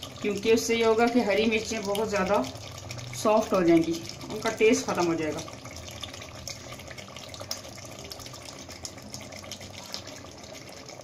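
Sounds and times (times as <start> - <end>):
curry sizzling in oil: 0.0 - 11.0.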